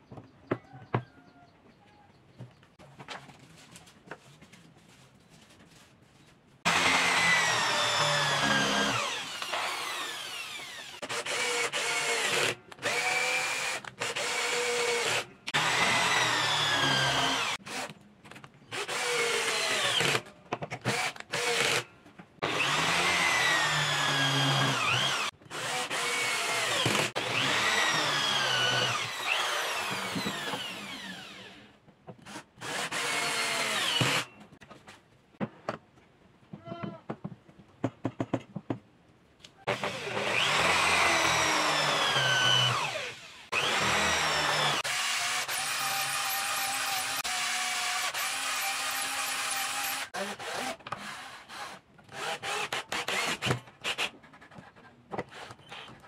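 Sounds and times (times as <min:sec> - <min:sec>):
electric drill driving screws: 0:06.7 - 0:17.9, 0:18.8 - 0:34.3, 0:39.7 - 0:54.1.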